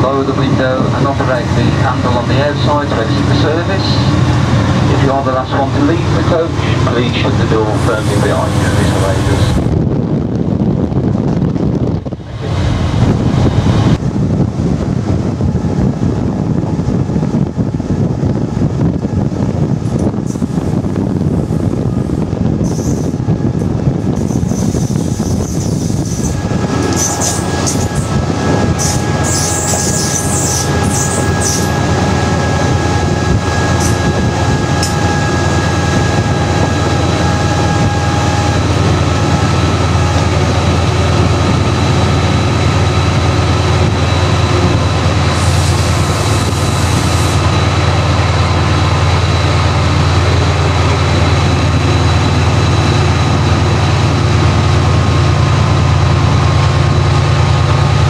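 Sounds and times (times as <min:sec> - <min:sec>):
train low drone: 0:00.0 - 0:58.0
high-pitched wheel squeals: 0:28.7 - 0:31.8.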